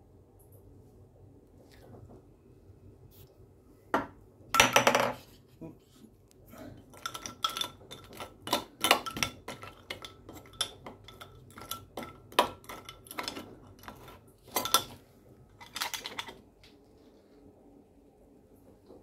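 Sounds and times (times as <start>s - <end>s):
ice and spatula clinking on glass: 6.9s - 15.0s.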